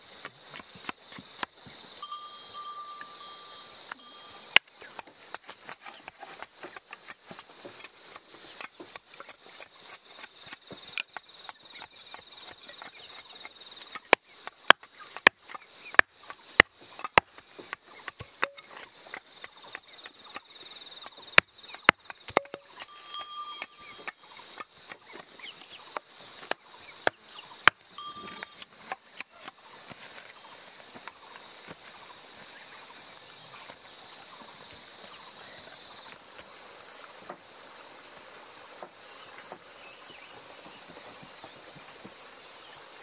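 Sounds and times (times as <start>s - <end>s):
faint steady high tone: 2.0s - 4.7s, 22.4s - 24.4s, 27.9s - 28.8s.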